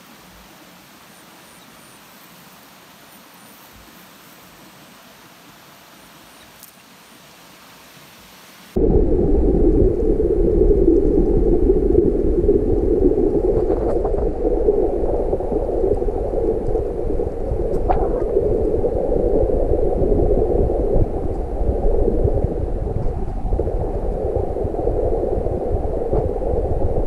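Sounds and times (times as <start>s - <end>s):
muffled underwater rush: 8.8s - 27.0s
faint clicks: 16.6s - 16.9s.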